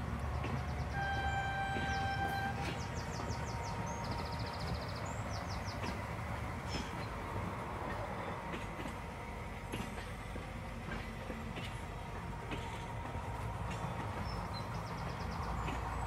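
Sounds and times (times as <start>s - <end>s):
diesel locomotive engine rumbling: 0.0s - 16.0s
birds chirping: 0.2s - 7.2s, 12.9s - 16.0s.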